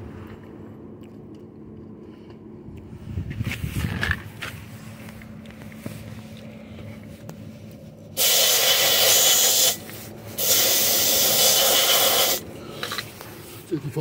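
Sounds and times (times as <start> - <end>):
compressed air hissing from tire valve: 8.2 - 13.2.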